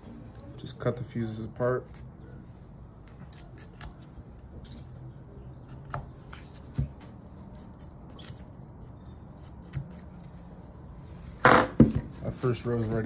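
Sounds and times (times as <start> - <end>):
knife snipping fuses: 3.3 - 4.1, 9.4 - 10.3.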